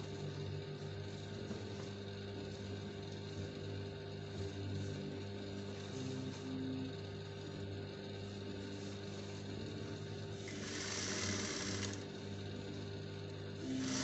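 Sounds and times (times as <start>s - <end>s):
low steady hum: 0.0s - 14.0s
sewing machine stitching: 10.4s - 12.0s, 13.6s - 14.0s.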